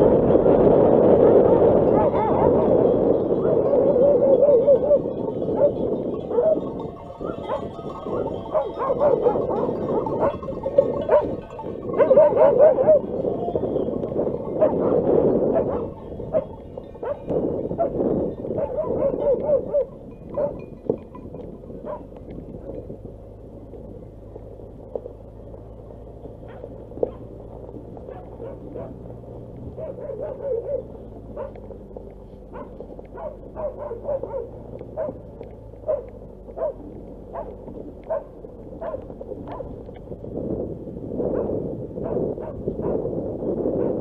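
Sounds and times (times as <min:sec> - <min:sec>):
low engine hum: 0:00.0 - 0:44.0
dog barking: 0:01.9 - 0:02.7, 0:03.4 - 0:06.6, 0:07.2 - 0:11.4, 0:12.0 - 0:13.1, 0:14.6 - 0:20.6, 0:21.8 - 0:22.1, 0:26.4 - 0:27.3, 0:28.0 - 0:29.0, 0:29.8 - 0:31.6, 0:32.5 - 0:39.7, 0:41.3 - 0:43.0
stones clicking under tyres: 0:15.6 - 0:43.6.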